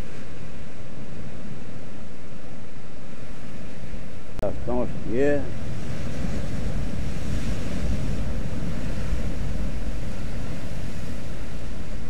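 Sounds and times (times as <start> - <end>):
wave crashing: 0.0 - 12.0
wind on microphone: 0.0 - 12.0
surf breaking on rocks: 4.6 - 12.0.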